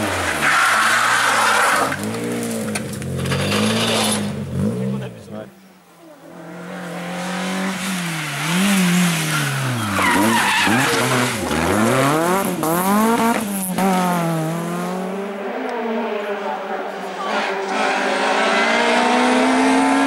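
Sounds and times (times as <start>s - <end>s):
tyres squealing and skidding: 0.0s - 2.2s, 3.2s - 4.4s, 7.1s - 12.1s
car engines revving hard: 0.0s - 5.4s, 6.2s - 20.0s.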